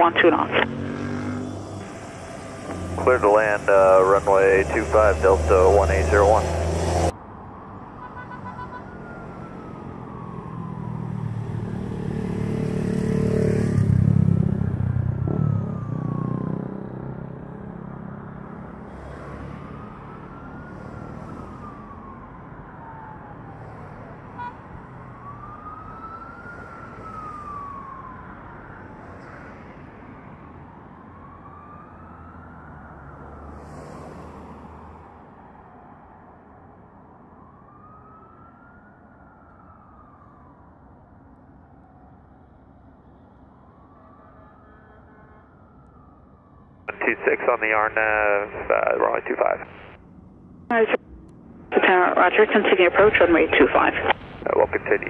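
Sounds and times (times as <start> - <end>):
siren wailing: 0.0 - 6.8, 14.6 - 18.6, 19.7 - 29.0.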